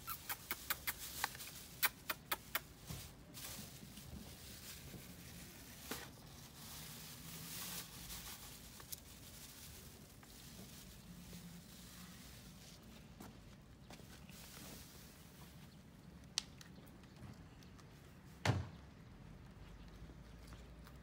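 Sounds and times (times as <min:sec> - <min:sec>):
plastic bag crinkling and rustling: 0:02.9 - 0:12.9.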